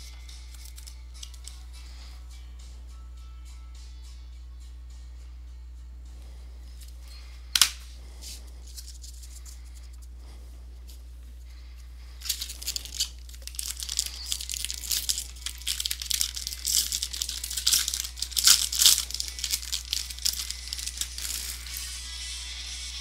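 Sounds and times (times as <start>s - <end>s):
plastic wrapper crinkling and tearing: 0.5s - 1.4s, 12.2s - 21.9s.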